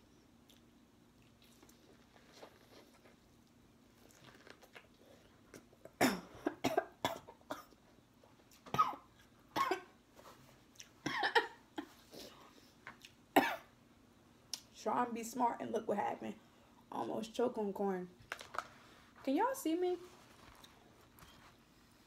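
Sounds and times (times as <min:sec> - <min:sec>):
woman coughing hard: 0:06.0 - 0:07.7, 0:08.7 - 0:10.0, 0:11.0 - 0:12.0, 0:13.4 - 0:13.7.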